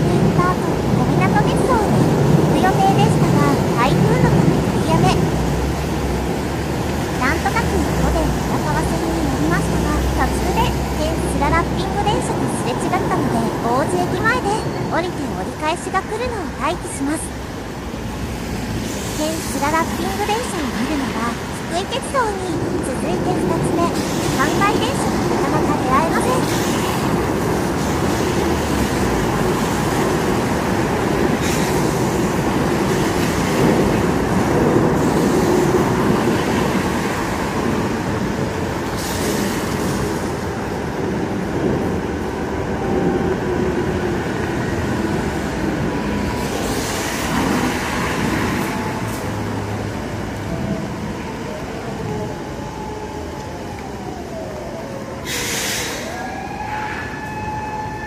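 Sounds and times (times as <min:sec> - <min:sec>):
traffic rumble: 0:00.0 - 0:58.0
tram rolling in: 0:00.0 - 0:58.0
siren wailing: 0:50.5 - 0:58.0
cars hissing past on wet road: 0:55.2 - 0:56.1.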